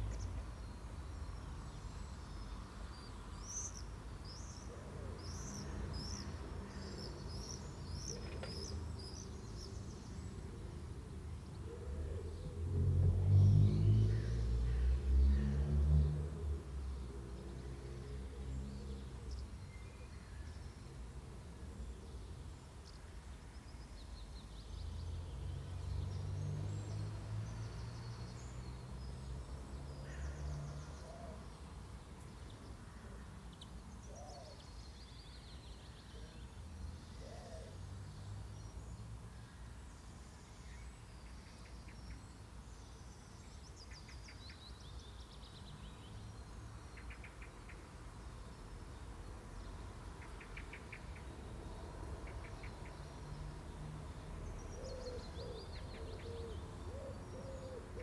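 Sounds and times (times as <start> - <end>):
small birds chirping: 18.4 - 58.0.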